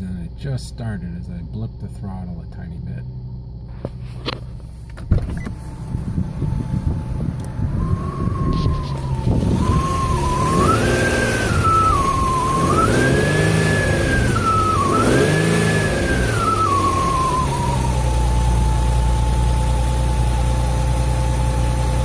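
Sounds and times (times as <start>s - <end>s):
car engine revving: 5.6s - 22.0s
transmission whistle: 7.7s - 18.8s.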